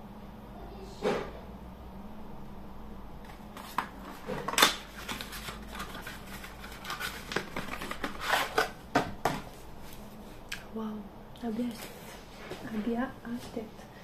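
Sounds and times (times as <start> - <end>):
packaging knocking and rustling: 3.3 - 9.6.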